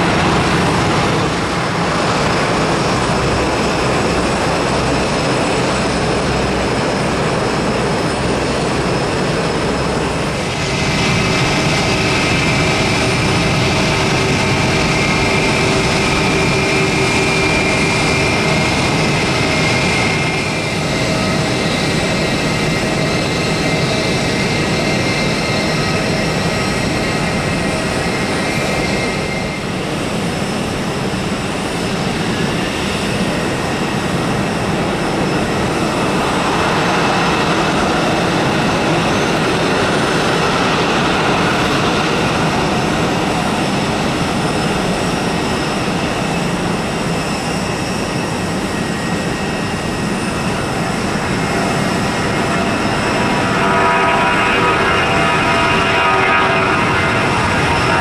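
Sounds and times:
jet engine whine: 0.0 - 58.0
jet engines rumbling: 0.0 - 58.0.

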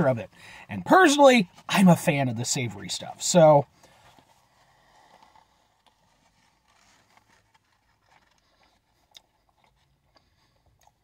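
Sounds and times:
chewing food: 4.2 - 11.0.

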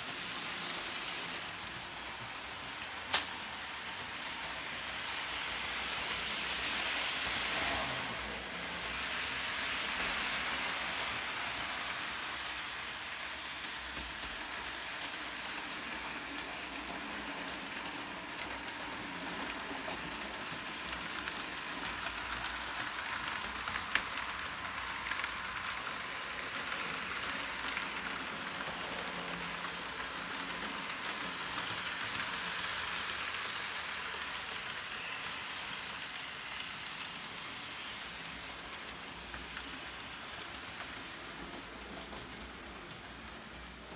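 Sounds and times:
model train wheels on rails: 0.0 - 43.9
sharp click: 3.1 - 3.4.

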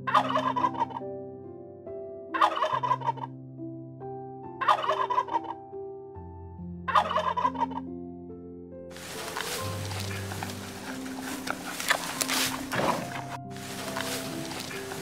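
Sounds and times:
soft background music: 0.0 - 15.0
turkey gobbling: 0.1 - 1.0, 2.4 - 3.2, 4.6 - 5.6, 6.9 - 7.8, 9.0 - 15.0.

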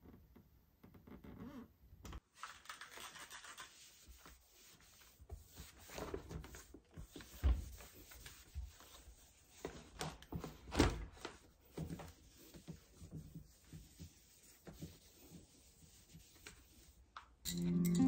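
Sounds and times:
cloth rubbing on metal door: 3.4 - 17.1.

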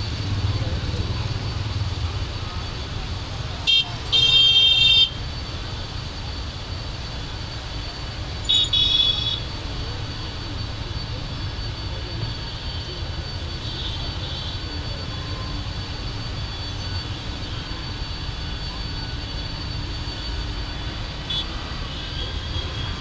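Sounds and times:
loud high-pitched beep: 8.1 - 23.0.

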